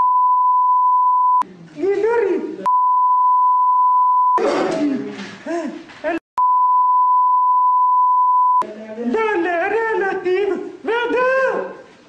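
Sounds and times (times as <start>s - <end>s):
censor beep: 0.0s - 1.4s, 2.7s - 4.4s, 6.4s - 8.7s
man speaking: 8.6s - 11.9s.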